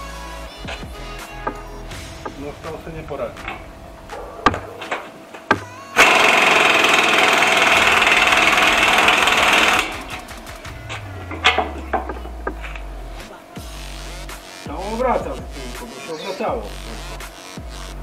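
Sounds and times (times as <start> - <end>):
pneumatic impact wrench hammering: 3.4 - 12.9.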